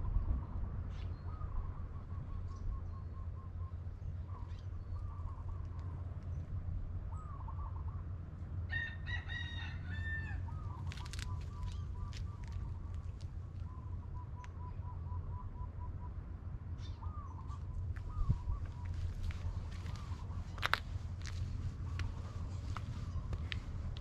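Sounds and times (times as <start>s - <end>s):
steady low rumble: 0.0s - 9.1s, 9.8s - 24.0s
rooster crowing: 8.7s - 10.5s.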